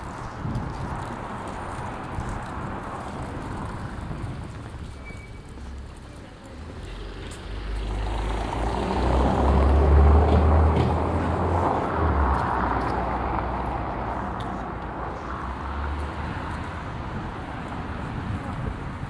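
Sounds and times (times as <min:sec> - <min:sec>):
car passing on cobblestones: 0:00.0 - 0:19.0.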